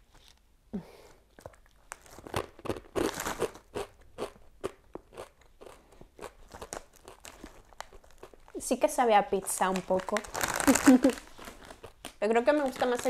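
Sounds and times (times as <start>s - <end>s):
chewing crunches: 1.3s - 8.6s
crunchy snack crunching: 1.4s - 8.6s, 9.5s - 13.0s.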